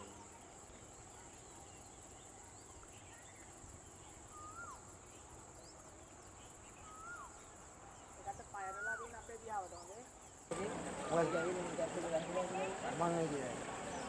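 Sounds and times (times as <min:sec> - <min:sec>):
bird whistled call: 0:04.3 - 0:04.8, 0:06.8 - 0:07.4.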